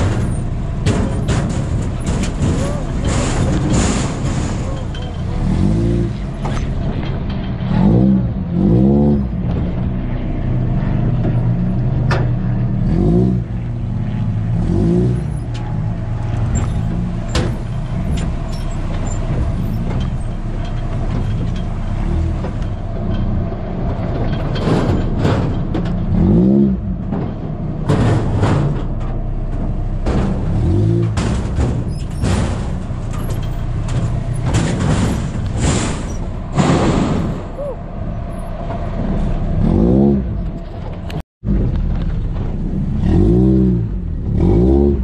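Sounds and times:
buggy engine revving: 0.0s - 45.0s
vehicle knocks and rattles: 0.0s - 45.0s.

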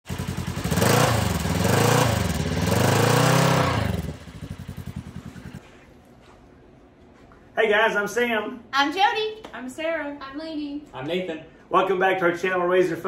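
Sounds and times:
engine revving: 0.0s - 5.6s
engine idling: 0.0s - 5.7s.

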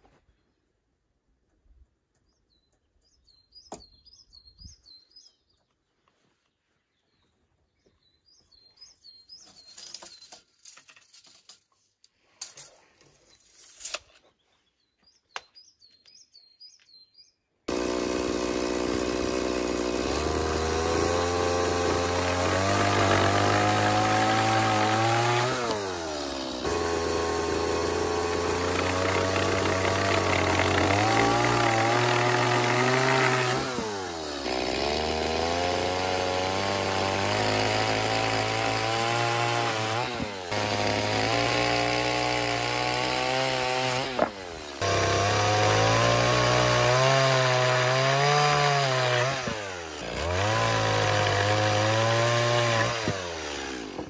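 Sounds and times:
songbird singing: 1.8s - 10.8s, 13.0s - 17.7s
chainsaw running: 17.7s - 54.0s.

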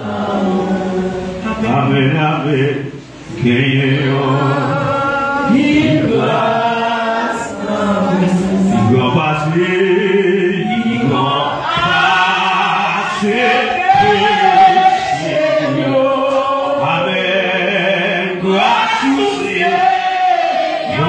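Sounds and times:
voices singing a slow chant: 0.0s - 21.0s.

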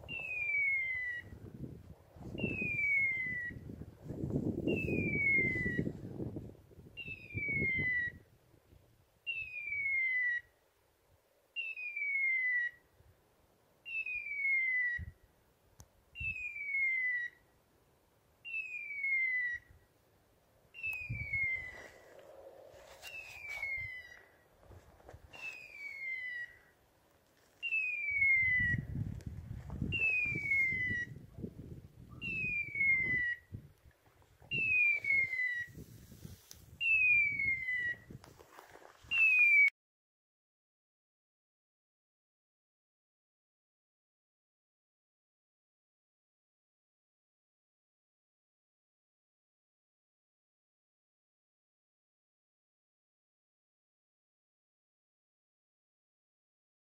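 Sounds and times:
footsteps through rough grass: 21.6s - 26.0s, 38.2s - 39.5s.

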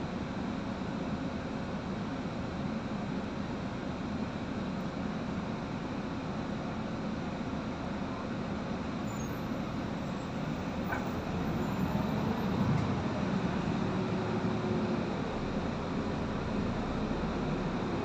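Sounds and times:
bus engine and road drone: 0.0s - 18.0s.

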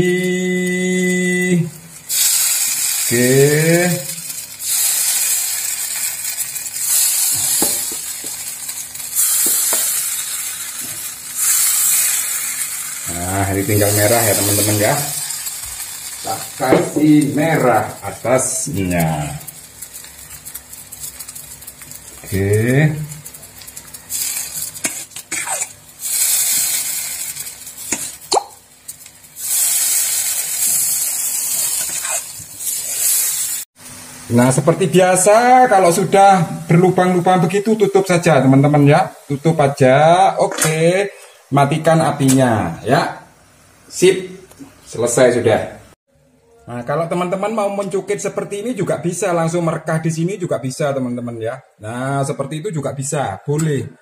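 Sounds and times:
batter sizzling in metal mould: 0.0s - 40.7s.

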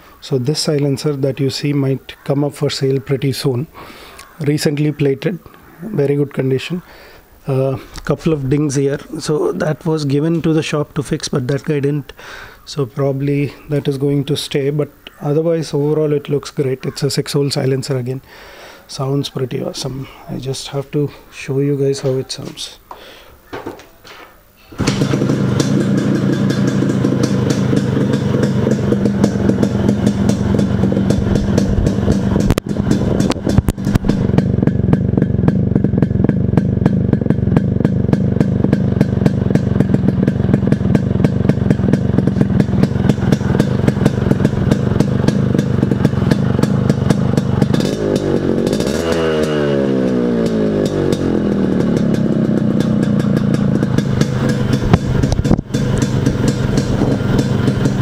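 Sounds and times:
two-stroke engine idling: 24.7s - 58.0s.

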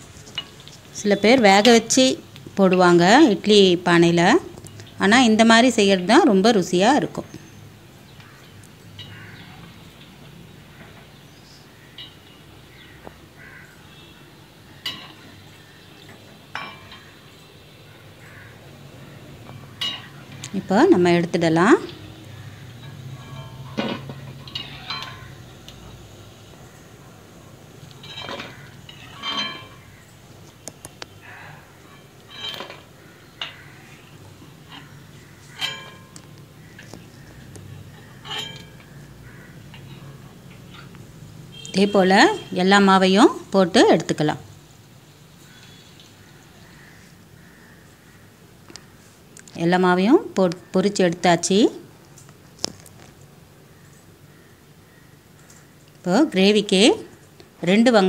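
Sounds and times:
metal spoon clinking on pan: 14.8s - 15.3s, 16.5s - 17.2s, 19.5s - 20.6s, 21.9s - 25.8s, 27.9s - 30.0s, 34.7s - 36.4s, 38.0s - 39.0s.

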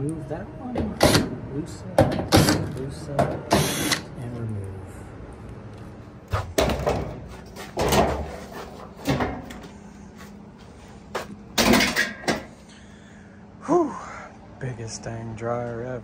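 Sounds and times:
sheet metal clunks and rattles: 6.4s - 7.2s, 7.8s - 8.4s, 9.0s - 9.6s, 11.6s - 12.5s.

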